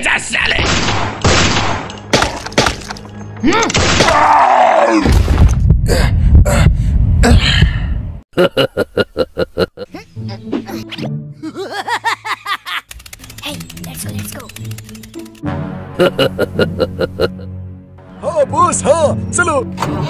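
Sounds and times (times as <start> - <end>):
cartoon music: 9.8 - 11.9.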